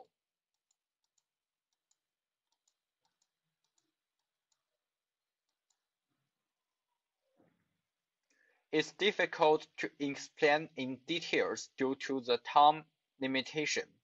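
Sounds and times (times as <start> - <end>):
faint irregular clicks: 0.0 - 4.7.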